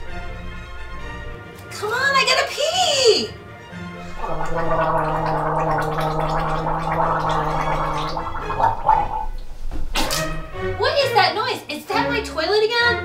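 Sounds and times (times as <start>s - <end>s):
woman gargling: 4.1s - 9.4s.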